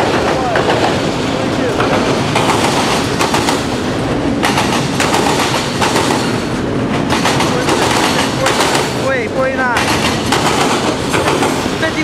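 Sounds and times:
steel wheels rumbling on rail: 0.0s - 12.0s
wheels clicking over rail joints: 4.4s - 12.0s.

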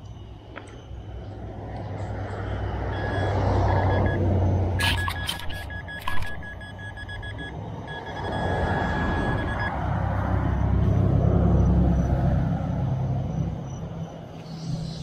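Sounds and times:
pinpointer beeping: 3.0s - 9.7s
motor vehicle passing: 8.2s - 14.0s.

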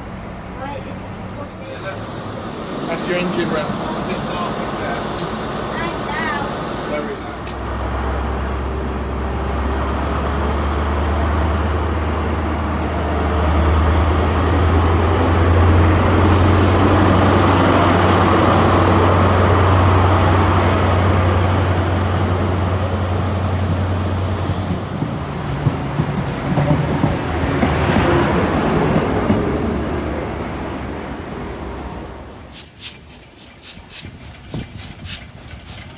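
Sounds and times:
diesel train engine revving: 0.0s - 32.5s
train coaches rumbling past: 0.0s - 35.9s
brief hiss: 1.7s - 7.6s, 16.4s - 16.9s.

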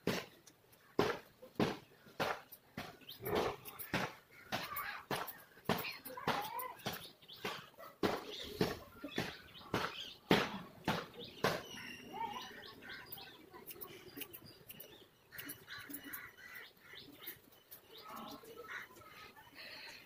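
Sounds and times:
faint chirping: 11.2s - 20.0s
scissors snipping hair: 12.9s - 16.6s.

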